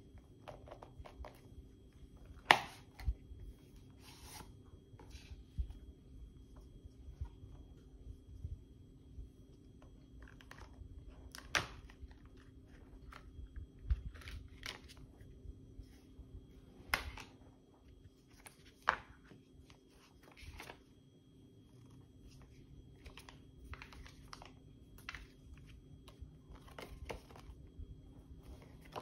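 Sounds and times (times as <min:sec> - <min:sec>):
paper rustling: 0:02.5 - 0:05.7, 0:10.1 - 0:16.1, 0:16.9 - 0:21.0, 0:21.8 - 0:27.6, 0:28.3 - 0:29.0.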